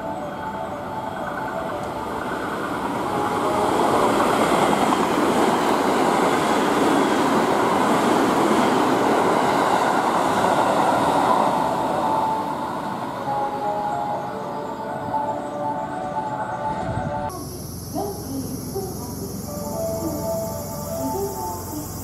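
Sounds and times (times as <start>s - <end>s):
train passing at speed: 0.0s - 22.0s
train wheels rumbling on rails: 0.5s - 13.2s.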